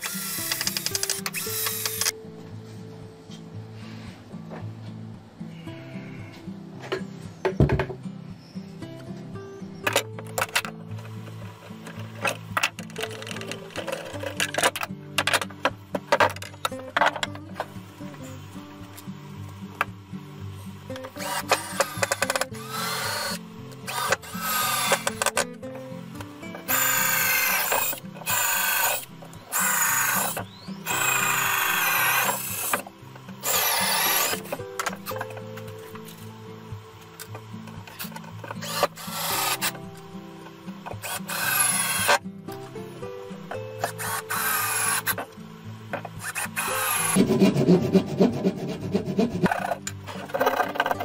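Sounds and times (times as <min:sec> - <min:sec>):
cordless drill whining: 0:00.0 - 0:02.1, 0:21.2 - 0:25.4, 0:26.6 - 0:32.8, 0:33.4 - 0:35.2, 0:38.5 - 0:39.8, 0:41.0 - 0:42.2, 0:43.8 - 0:45.2, 0:46.2 - 0:47.2
background music: 0:00.0 - 0:51.0
hand saw cutting wood: 0:21.2 - 0:25.4, 0:26.6 - 0:32.8, 0:33.4 - 0:34.7, 0:46.2 - 0:51.0.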